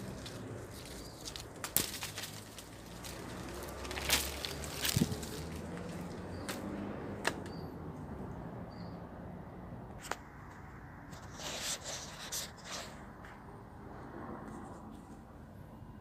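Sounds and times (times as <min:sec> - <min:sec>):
rustling: 0:00.0 - 0:06.6.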